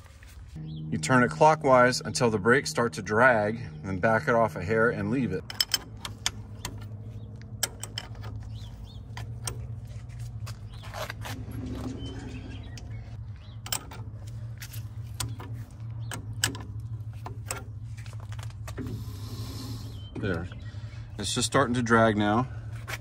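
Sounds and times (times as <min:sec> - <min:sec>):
steady low hum: 0:00.0 - 0:23.0
wrench clicking on metal: 0:05.4 - 0:06.9.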